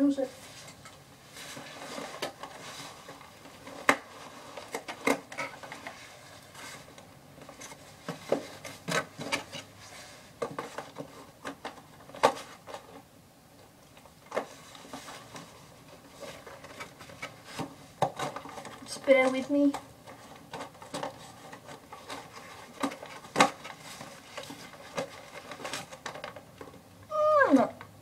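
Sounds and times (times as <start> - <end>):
hands rattling plastic packaging: 14.0 - 26.9.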